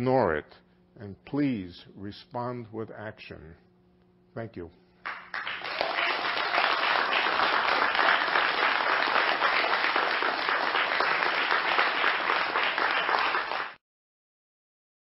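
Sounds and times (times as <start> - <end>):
audience applauding: 5.0 - 13.8.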